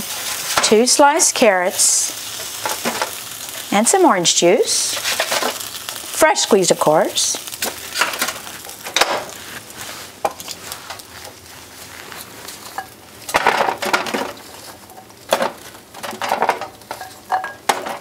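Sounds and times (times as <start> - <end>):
knocks and clinks of bowl and pan: 15.3 - 18.0.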